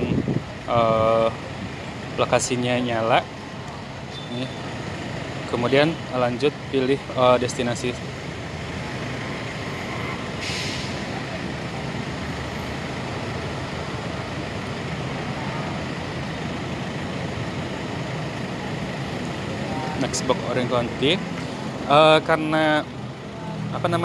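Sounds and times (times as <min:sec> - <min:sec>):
traffic rumble: 0:00.0 - 0:24.0
short burst of hiss: 0:10.4 - 0:11.1.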